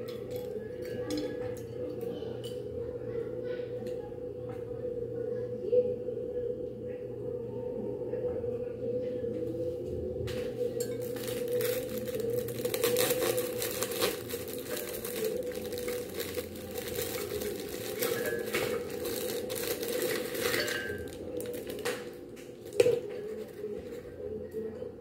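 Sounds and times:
steady low hum: 0.0 - 25.0
plastic packet crinkling: 10.8 - 24.0.

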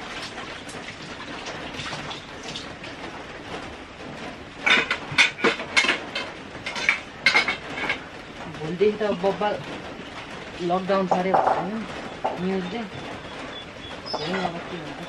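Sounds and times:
metal cookware clattering: 4.6 - 8.1.

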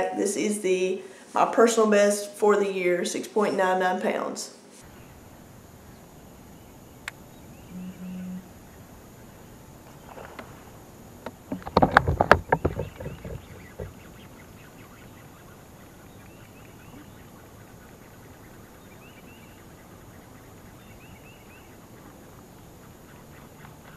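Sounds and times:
faint steady outdoor hiss: 0.0 - 23.9
plastic hull and gear clattering: 11.3 - 14.0.

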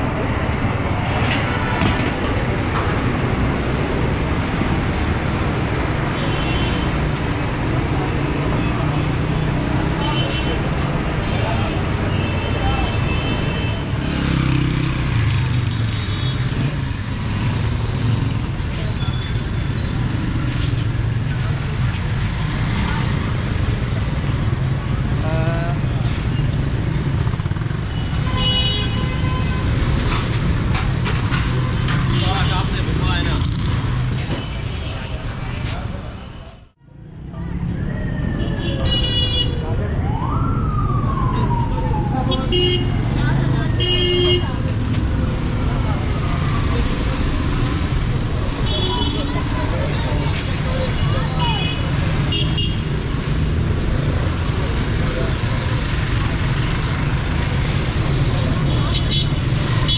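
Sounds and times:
street traffic hum: 0.0 - 59.9.

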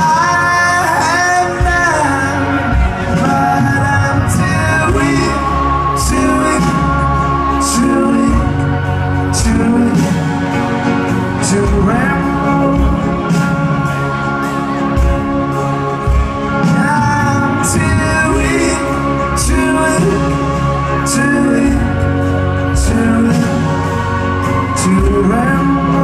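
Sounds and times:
live rock band playing: 0.0 - 26.0
person singing: 0.0 - 26.0.

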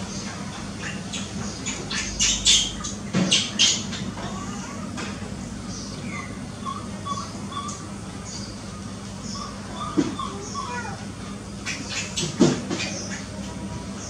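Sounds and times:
baby macaque squawking cries: 9.3 - 11.0.

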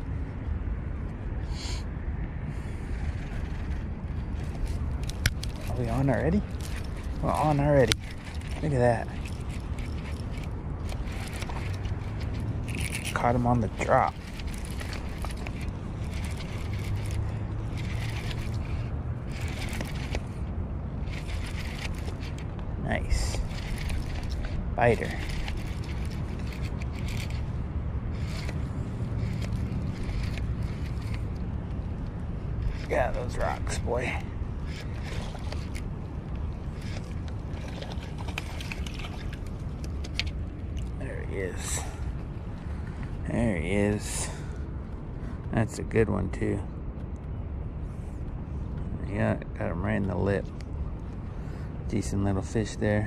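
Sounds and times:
wind rumble on microphone: 0.0 - 53.0
fishing reel clicking: 4.5 - 20.3, 21.0 - 22.4, 23.2 - 27.5, 28.1 - 31.4, 34.6 - 35.8, 36.7 - 40.4
light reel clicks: 23.2 - 27.5, 28.1 - 31.4.

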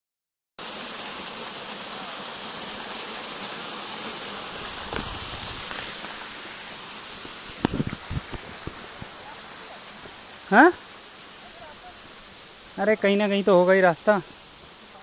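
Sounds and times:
waterfall splashing on rock: 0.6 - 12.2.

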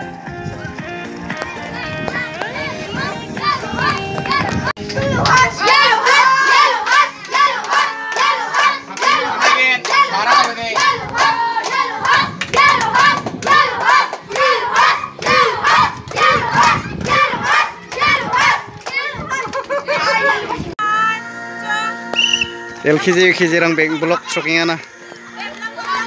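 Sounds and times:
children clapping: 3.8 - 20.4, 24.8 - 26.0
children chanting: 5.2 - 19.2.

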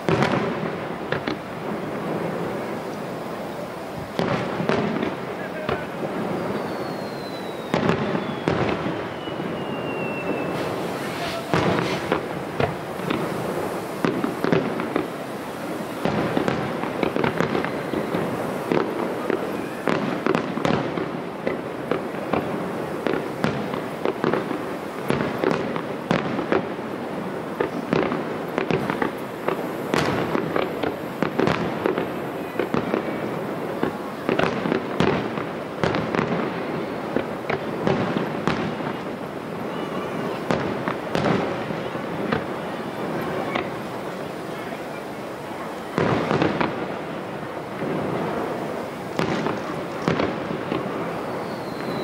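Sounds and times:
fireworks crackling: 0.0 - 52.0
firework shells bursting: 4.0 - 26.7.

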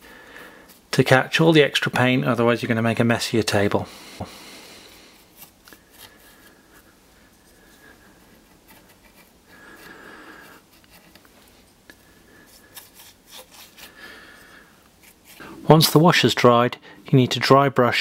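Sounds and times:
paintbrush scratching on plastic: 8.5 - 9.4, 12.5 - 14.0.

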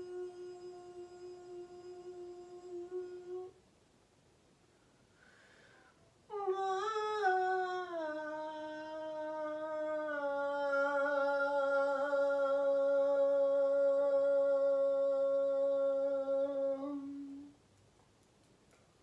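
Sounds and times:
woman humming long note: 0.0 - 3.6, 6.3 - 17.6
faint clicks: 17.7 - 19.0.

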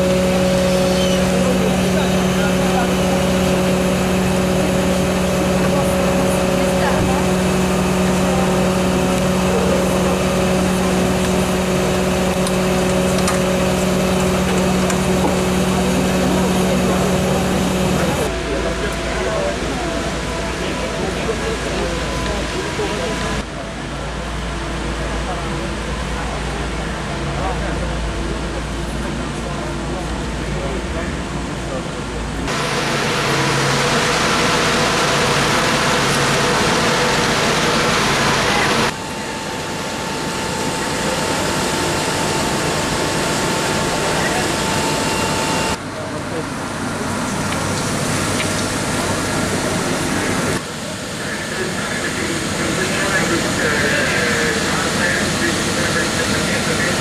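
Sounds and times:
diesel engine running: 0.0 - 57.0.

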